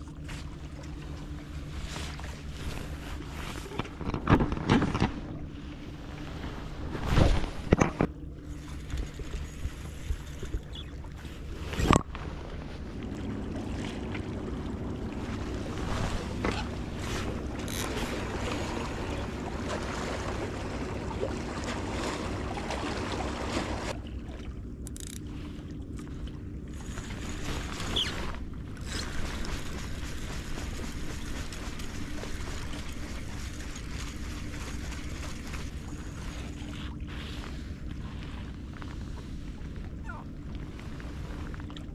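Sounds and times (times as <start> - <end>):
water lapping against rocks: 0.0 - 41.9
wind rumbling on microphone: 1.4 - 24.0.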